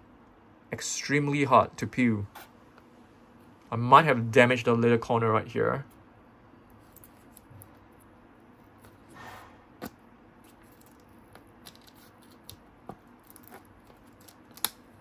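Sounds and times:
plastic film peeling crackles: 10.5s - 15.0s.

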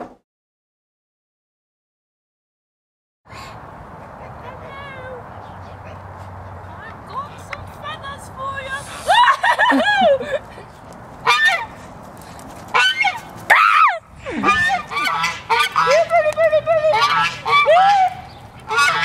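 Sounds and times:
geese honking: 11.2s - 11.8s, 12.7s - 19.0s.

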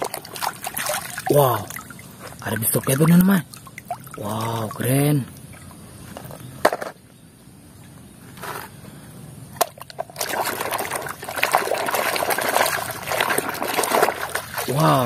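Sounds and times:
toy scrubbed in sloshing water: 0.0s - 3.2s, 10.0s - 15.0s.

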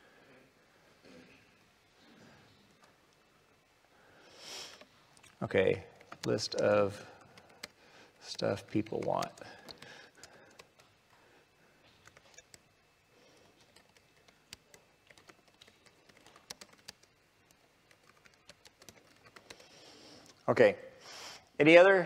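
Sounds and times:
faint keyboard typing: 4.7s - 20.4s.

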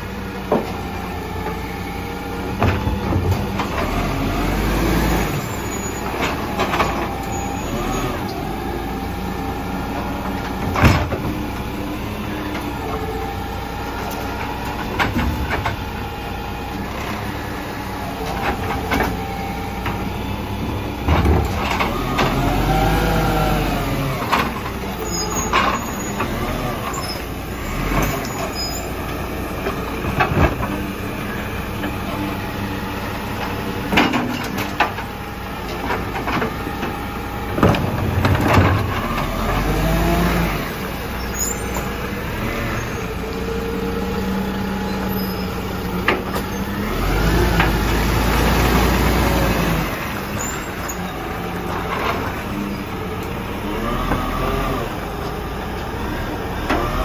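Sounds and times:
diesel engine running: 0.0s - 57.0s
hydraulic whine: 0.1s - 29.2s
clanks and knocks of bins: 2.5s - 4.7s, 5.4s - 7.9s, 10.0s - 11.7s, 14.0s - 16.1s, 18.2s - 22.6s, 23.9s - 31.2s, 33.3s - 42.6s, 45.6s - 55.8s.

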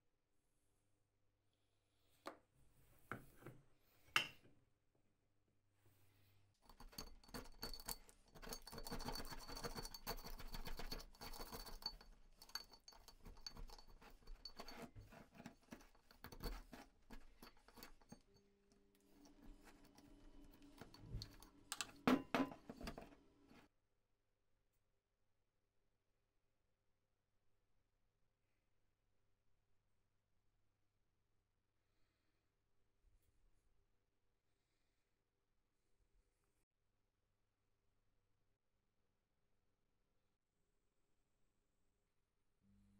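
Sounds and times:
metal tool scraping rust: 6.7s - 18.4s.

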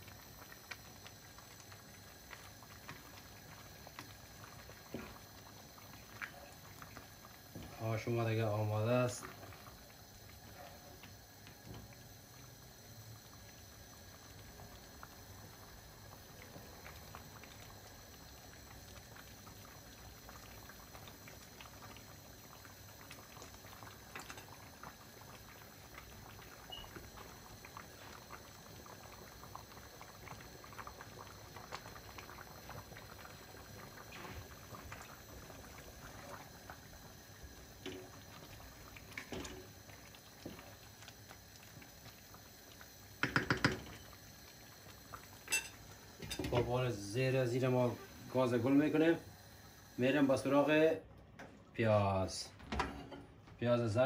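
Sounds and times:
soup bubbling in a pot: 0.0s - 54.0s
knocks against a pot: 43.2s - 43.9s.

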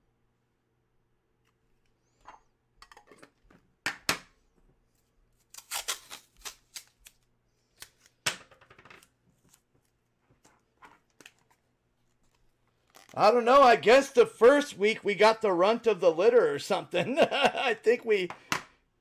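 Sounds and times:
hands handling packaging: 9.0s - 13.2s.

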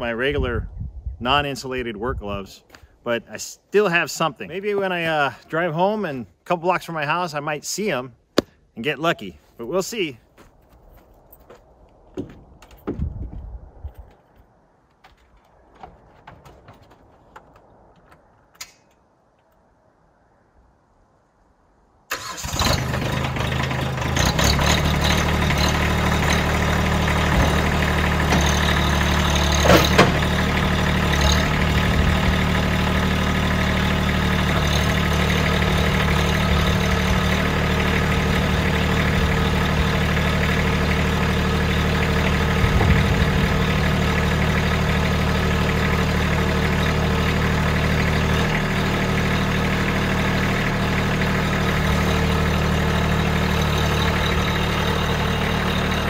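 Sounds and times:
sharp knocks: 12.1s - 13.1s
diesel tractor engine idling: 22.1s - 56.0s.

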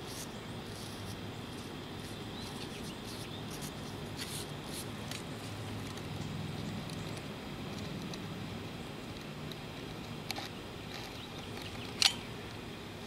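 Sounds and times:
steady low hum: 0.0s - 13.0s
high chirps and ticks: 0.1s - 4.0s.

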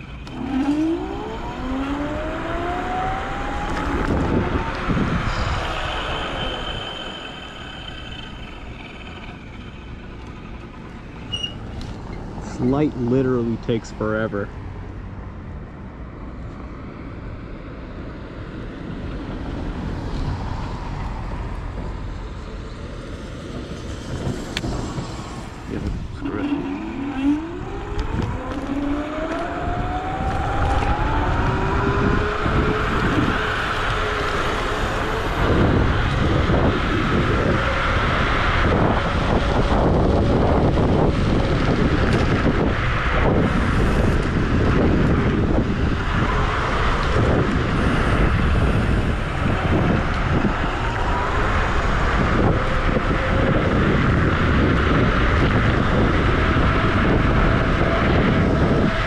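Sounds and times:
electric scooter motor whining: 0.0s - 12.2s, 26.2s - 59.0s
wind rush on microphone: 0.0s - 59.0s.

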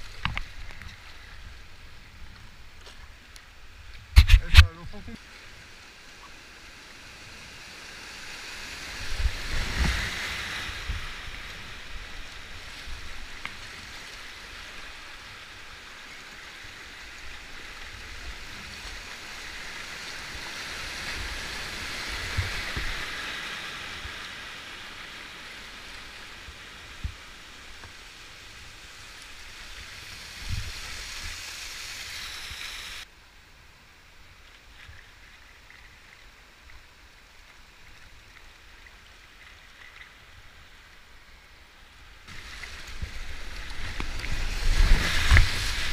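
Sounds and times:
whitewater rushing over rocks: 42.3s - 45.9s.

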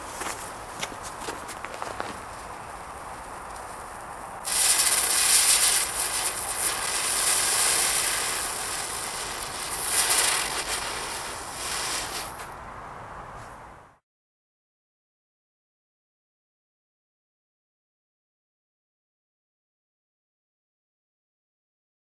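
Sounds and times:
firework spinner hissing sparks: 2.1s - 12.6s
fuse fizzing: 4.4s - 12.5s.

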